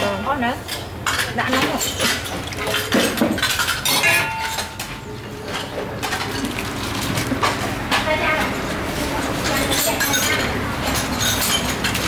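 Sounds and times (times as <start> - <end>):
metal ladle clinking on dishes: 0.8 - 4.8.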